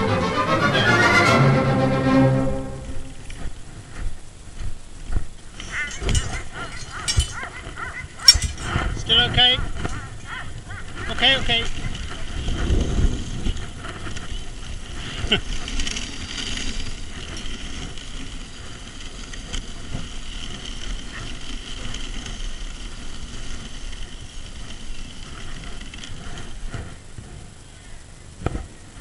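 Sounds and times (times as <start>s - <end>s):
sled runners scraping on snow: 0.0s - 29.0s
rumbling bumps: 1.3s - 27.6s.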